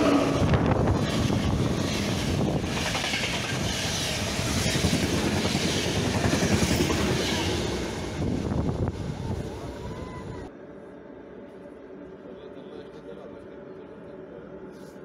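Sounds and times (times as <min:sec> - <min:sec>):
train wheels rumbling on rails: 0:00.0 - 0:10.5.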